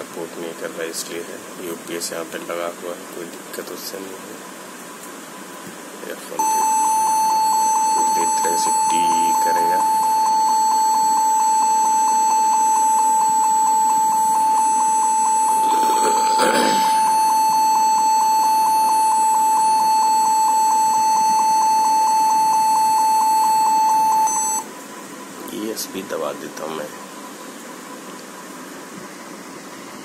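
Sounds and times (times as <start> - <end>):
rapid high beeps: 6.4 - 24.6.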